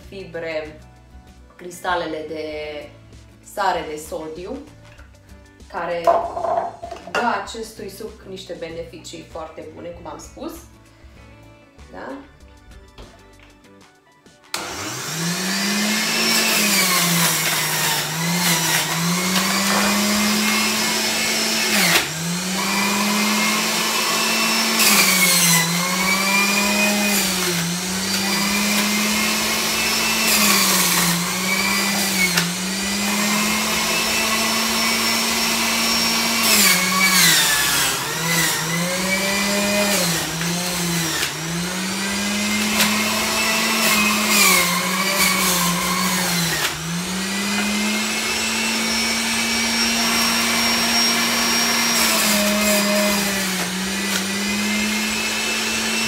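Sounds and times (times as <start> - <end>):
juicer motor whine: 14.5 - 56.0.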